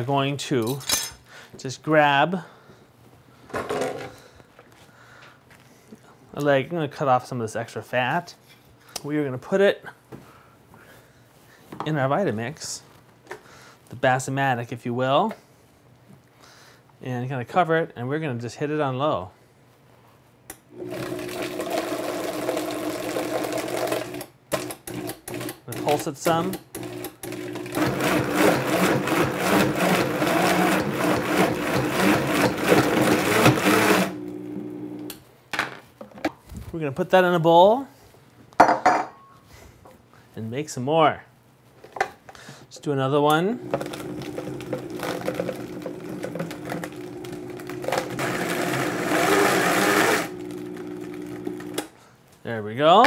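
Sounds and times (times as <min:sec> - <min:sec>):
blender chopping meat: 0:20.8 - 0:35.1, 0:43.6 - 0:51.8.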